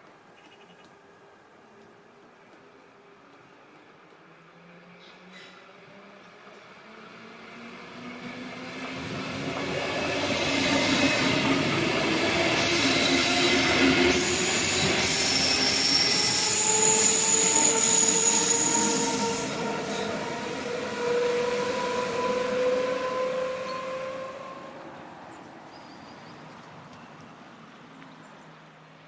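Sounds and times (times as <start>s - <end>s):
train rumble: 0.9s - 25.6s
train wheels squealing: 4.9s - 5.7s, 10.1s - 11.5s, 12.5s - 24.6s, 25.7s - 26.6s.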